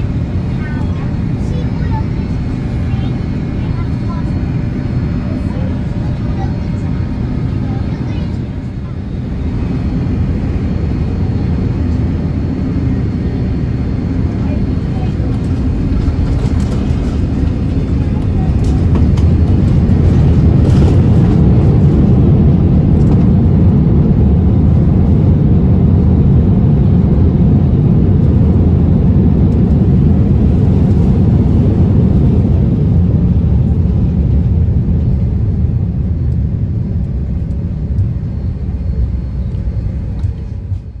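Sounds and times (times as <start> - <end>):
low rumble of wheels and engines: 0.0 - 41.0.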